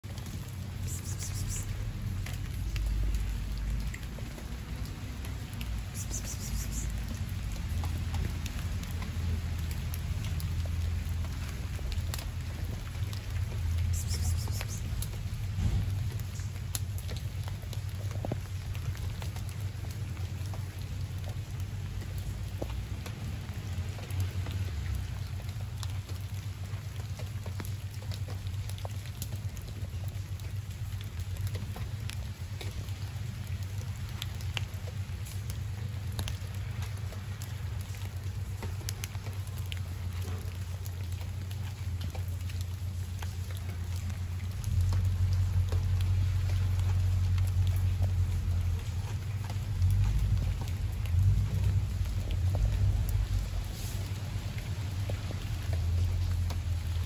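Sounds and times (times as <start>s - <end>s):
low rumble: 0.0s - 25.9s
light rain falling: 0.0s - 57.0s.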